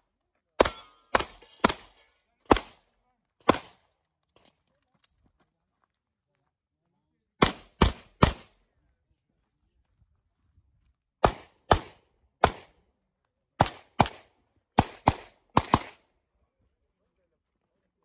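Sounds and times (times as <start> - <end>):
pistol shots: 0.6 - 2.8, 3.4 - 3.8, 7.4 - 8.5, 11.2 - 12.8, 13.6 - 16.0.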